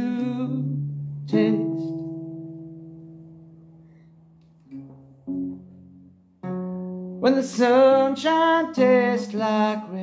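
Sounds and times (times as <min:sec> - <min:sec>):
person singing a word: 0:00.0 - 0:02.2
acoustic guitar chord ringing: 0:00.0 - 0:08.1.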